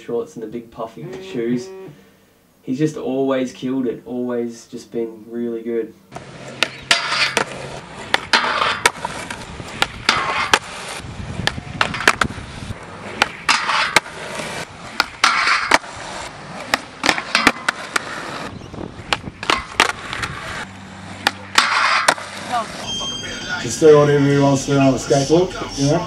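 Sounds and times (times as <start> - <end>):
skateboard wheels rolling on concrete: 6.1 - 26.0
skateboard clacking on ground: 6.2 - 22.8.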